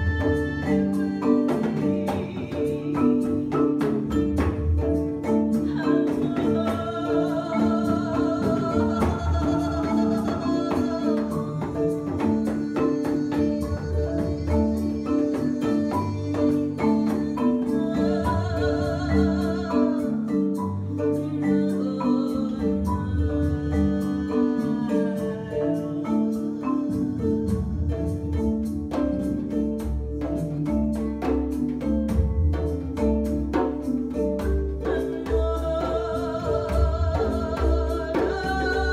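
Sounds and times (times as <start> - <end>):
hand drum beats: 0.0 - 38.9
marimba playing a repeating pattern: 0.0 - 38.9
sustained wavering melody: 6.6 - 27.6.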